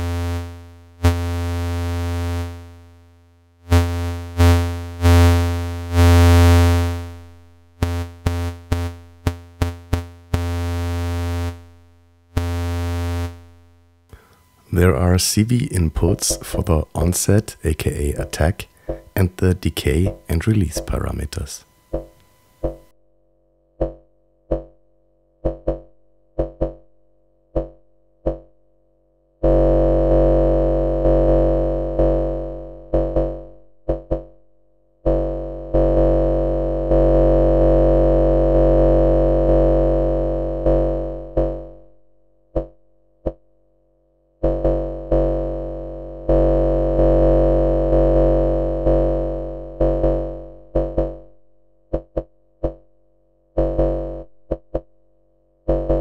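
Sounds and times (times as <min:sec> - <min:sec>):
synthesizer repeating single note: 0:14.2 - 0:22.1.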